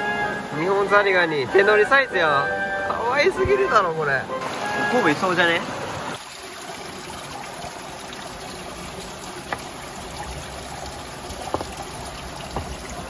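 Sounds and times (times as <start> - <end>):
stream water trickling: 0.0 - 13.0
stones turned underwater: 11.3 - 12.9.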